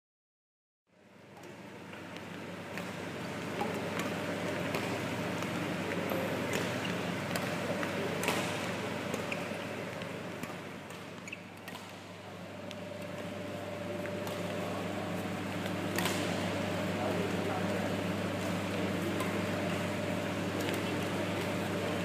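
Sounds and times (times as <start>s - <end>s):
steady background hum: 0.9s - 22.0s
racket hitting shuttlecocks: 6.4s - 16.6s.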